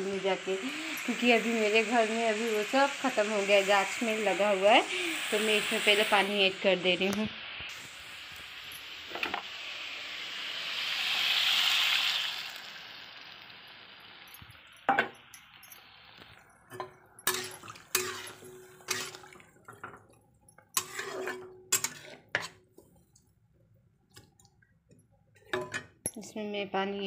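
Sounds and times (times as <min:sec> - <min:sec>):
loud sizzle of water in pan: 0:00.0 - 0:19.7
metal spatula scraping pan: 0:16.7 - 0:19.9, 0:20.7 - 0:22.6.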